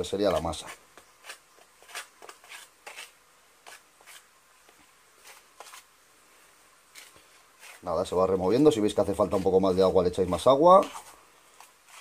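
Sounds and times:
utensil scraping in plastic tub: 5.2s - 5.9s, 6.9s - 12.0s.

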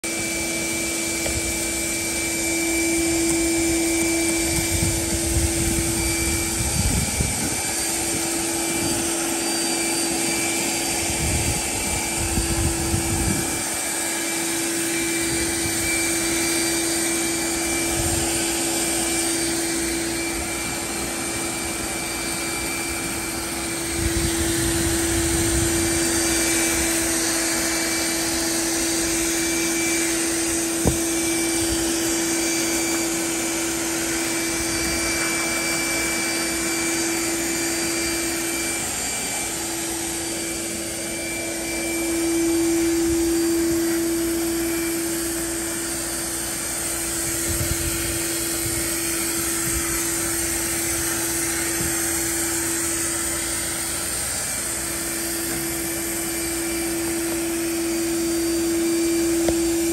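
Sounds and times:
small motor humming: 0.0s - 59.9s
wind on the microphone: 3.2s - 9.2s, 10.9s - 13.8s, 23.8s - 27.0s, 47.2s - 52.2s.

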